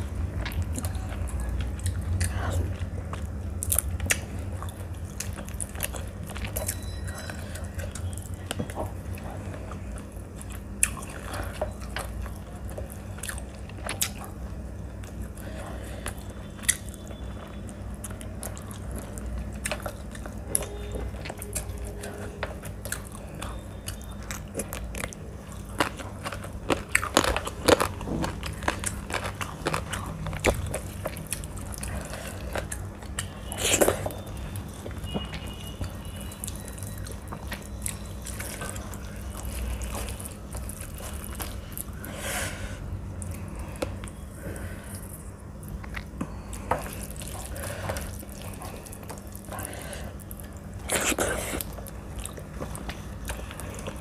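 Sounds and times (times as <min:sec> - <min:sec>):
chewing and wet mouth sounds: 0:00.0 - 0:54.0.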